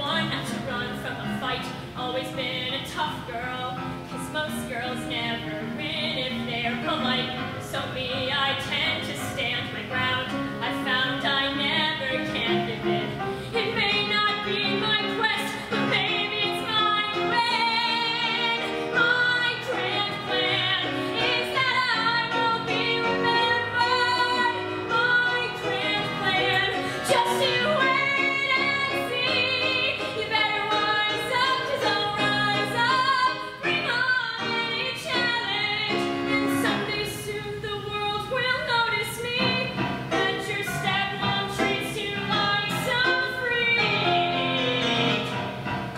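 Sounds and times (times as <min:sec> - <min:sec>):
keyboard accompaniment: 0:00.0 - 0:45.9
girl singing: 0:13.6 - 0:45.0.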